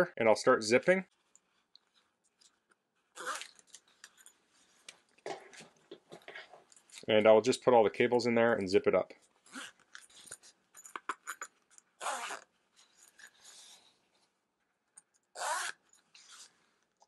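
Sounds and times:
zipper being pulled: 0:03.1 - 0:03.7, 0:09.4 - 0:10.2, 0:12.0 - 0:12.5, 0:15.3 - 0:16.6
zipper rasps: 0:03.1 - 0:03.7, 0:09.4 - 0:10.2, 0:11.1 - 0:12.5, 0:15.3 - 0:16.6.

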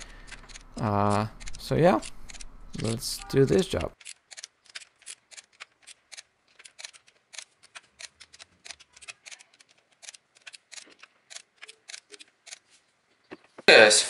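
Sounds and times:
ratchet wrench clicking: 0:00.0 - 0:02.5.

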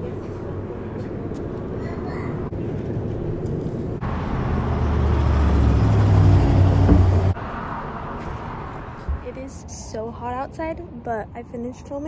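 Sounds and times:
vehicle engine rumbling: 0:00.0 - 0:09.6.

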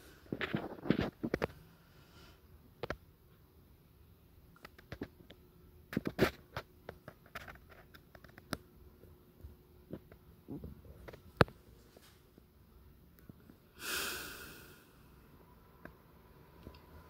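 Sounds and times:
faint clicks and taps: 0:04.6 - 0:11.6.

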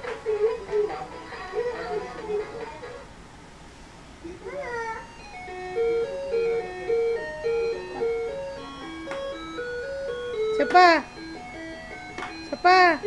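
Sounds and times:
simple electronic jingle: 0:05.2 - 0:13.0.

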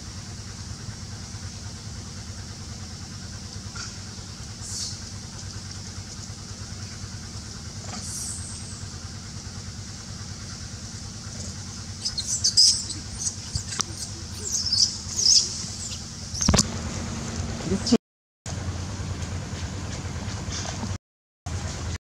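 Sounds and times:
steady low hum: 0:00.0 - 0:20.9
baby monkey squealing: 0:11.4 - 0:16.6.

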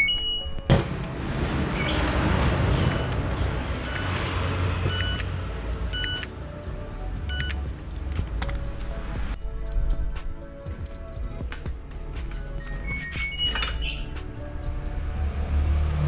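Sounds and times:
washing machine beeping: 0:00.0 - 0:00.7, 0:02.7 - 0:03.2, 0:03.8 - 0:05.3, 0:05.9 - 0:06.3, 0:07.3 - 0:07.6.

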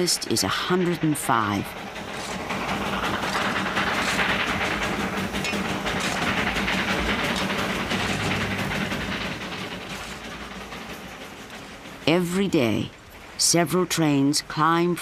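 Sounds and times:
steam locomotive clatter: 0:00.0 - 0:15.0.

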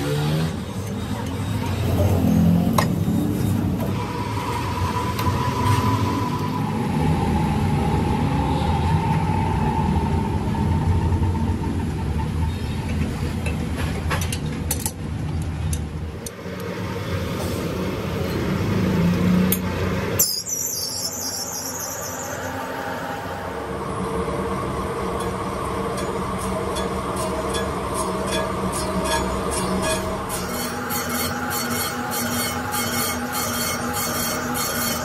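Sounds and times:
grinding machine humming: 0:17.9 - 0:35.0.

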